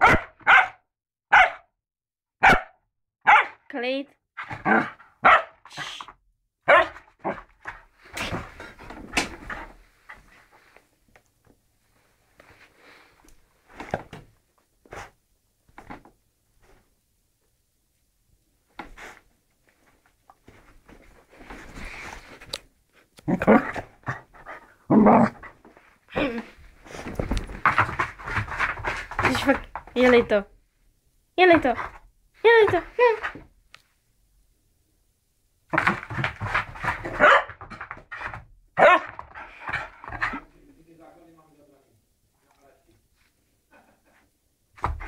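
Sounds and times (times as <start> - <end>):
small dog barking and yipping: 0.0 - 1.6, 2.4 - 2.7, 3.3 - 3.6, 4.7 - 5.6, 6.7 - 7.4, 37.2 - 37.6, 38.8 - 39.1
bedding rustling: 18.9 - 22.6, 23.6 - 30.4
dog growling in play: 23.2 - 25.6.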